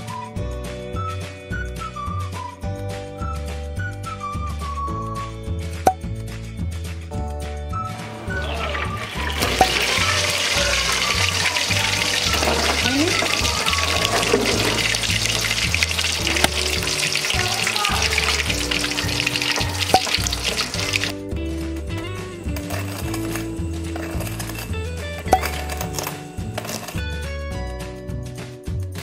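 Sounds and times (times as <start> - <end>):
meat sizzling in hot oil: 7.9 - 21.2, 22.1 - 27.0.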